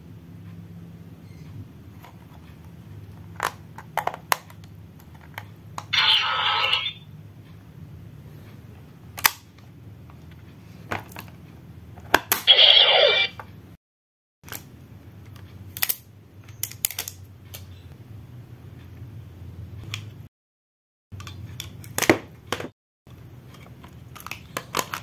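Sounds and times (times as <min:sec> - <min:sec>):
toy electronic sound effect: 0:05.9 - 0:07.1, 0:12.4 - 0:13.4.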